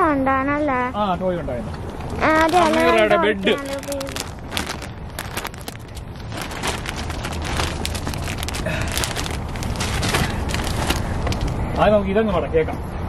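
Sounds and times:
steady low rumble: 1.7 - 11.8
packaging crackling and rustling: 2.0 - 11.6.

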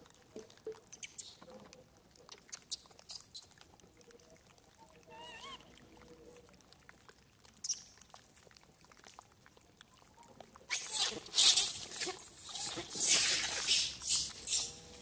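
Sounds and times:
monkey squeak: 5.2 - 5.6, 10.7 - 14.8.

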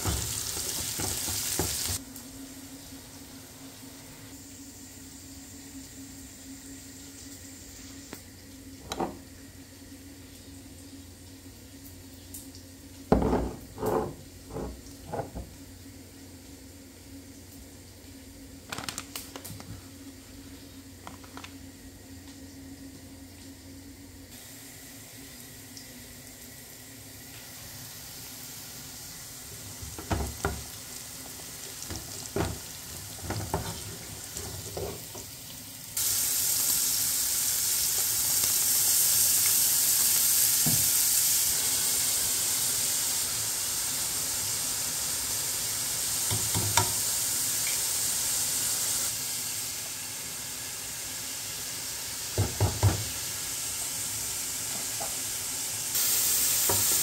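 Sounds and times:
meat and onions sizzling: 0.0 - 8.2, 26.5 - 57.0.

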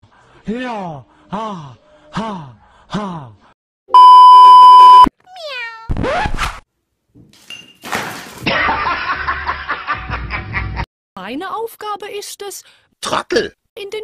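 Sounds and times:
loud steady beep tone: 4.0 - 5.1
cat meowing and yowling: 5.2 - 5.9.

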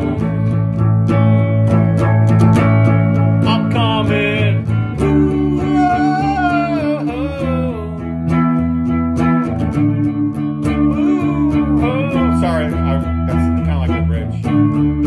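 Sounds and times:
man singing wordless melody: 0.0 - 0.6, 3.4 - 8.5, 10.8 - 13.4
electric guitar strumming chords: 0.0 - 15.0.

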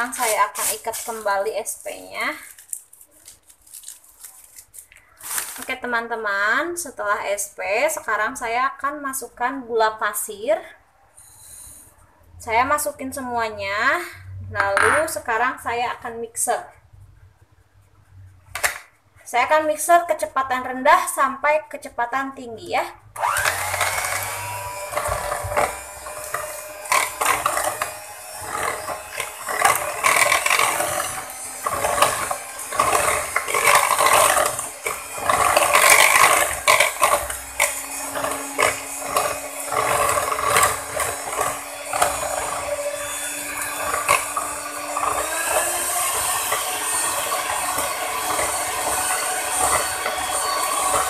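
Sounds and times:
electric hand mixer whining: 0.0 - 1.3, 23.1 - 51.0.

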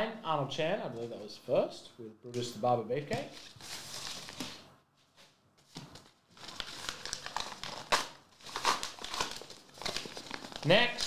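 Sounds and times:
packaging crinkling and tearing: 5.9 - 11.0.

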